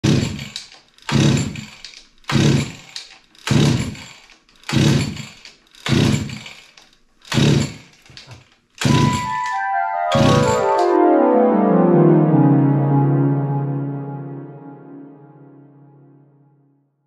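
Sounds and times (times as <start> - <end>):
small engine pull-start bursts: 0.1 - 9.0.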